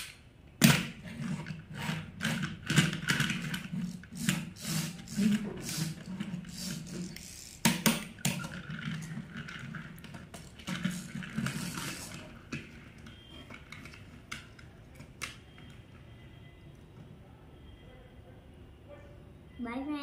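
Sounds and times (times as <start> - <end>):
toy truck wheels rolling on wood: 0.7 - 15.6.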